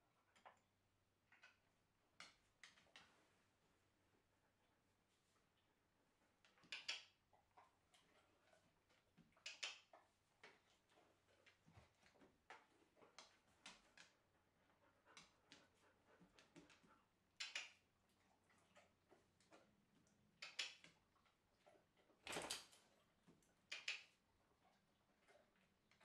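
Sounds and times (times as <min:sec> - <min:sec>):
dog mouth clicks and smacks: 0:06.4 - 0:08.2, 0:09.4 - 0:10.6, 0:17.4 - 0:17.8, 0:20.4 - 0:21.0, 0:23.7 - 0:24.2.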